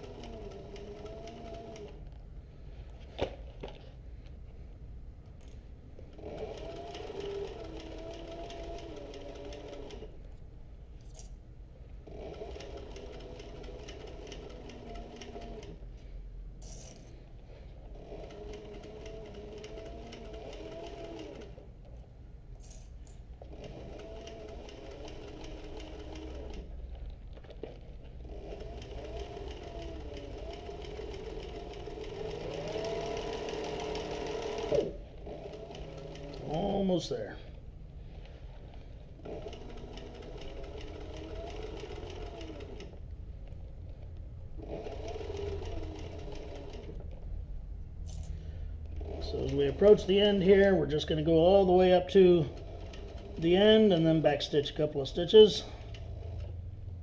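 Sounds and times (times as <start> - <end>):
sewing machine stitching: 0.0 - 2.1, 6.0 - 10.2, 12.0 - 15.8, 17.8 - 21.7, 22.6 - 37.6, 38.6 - 47.3, 48.9 - 56.7.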